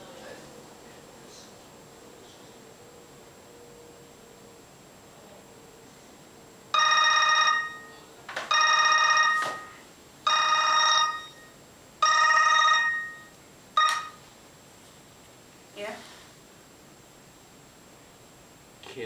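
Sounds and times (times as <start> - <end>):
phone ringtone ringing: 6.8 - 14.2.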